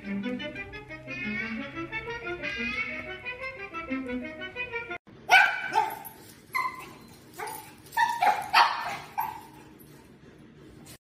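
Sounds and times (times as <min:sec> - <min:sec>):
music: 0:00.0 - 0:05.0
puppy barking: 0:05.3 - 0:09.6.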